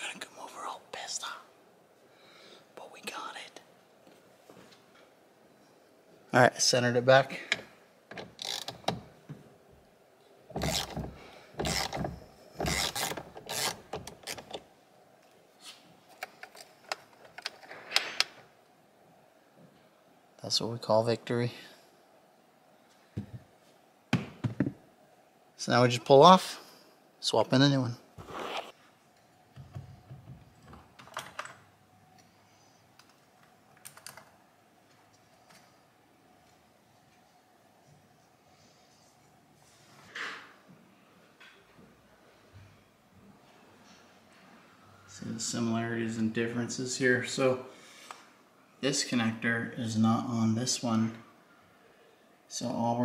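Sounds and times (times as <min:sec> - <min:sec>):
metallic scraping rasps: 0:10.6 - 0:14.5.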